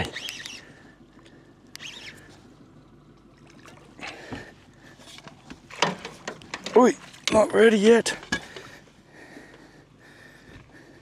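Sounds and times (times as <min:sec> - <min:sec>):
faint steady hum: 0:00.0 - 0:11.0
fish splashing in water: 0:03.2 - 0:04.2.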